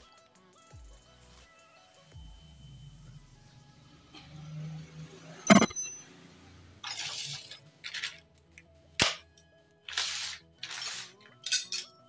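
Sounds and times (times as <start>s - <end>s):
metallic clink: 5.5s - 6.1s
sharp click: 5.5s - 6.1s.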